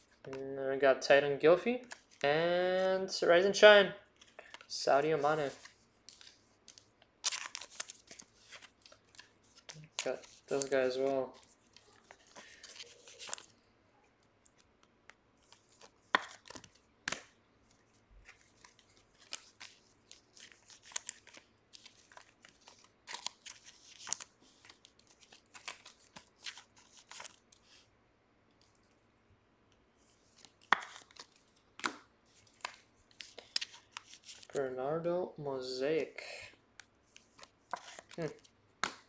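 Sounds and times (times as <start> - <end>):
wrappers and cards rustling: 1.7 - 3.2, 4.1 - 27.9, 30.0 - 34.6, 36.8 - 39.0
card packs being torn open: 7.2 - 10.9, 18.3 - 27.4.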